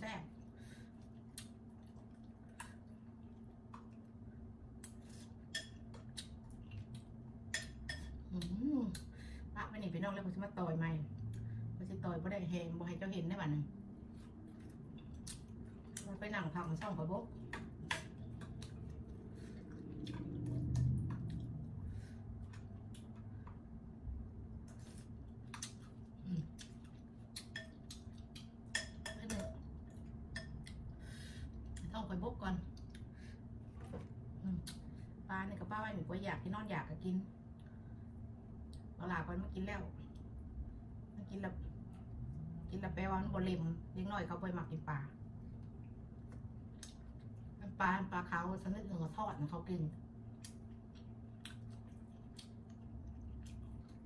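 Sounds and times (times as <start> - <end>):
steady low hum: 0.0 - 54.0
chewing smacks: 24.6 - 28.6, 50.4 - 54.0
crisp chewing: 50.3 - 54.0
lip smacks: 50.4 - 54.0.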